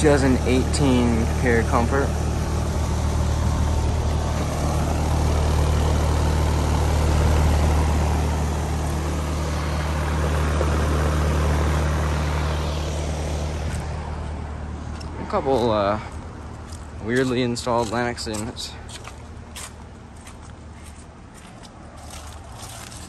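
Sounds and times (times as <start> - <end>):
condenser fan rushing air: 0.0 - 16.3
compressor humming: 0.0 - 21.2.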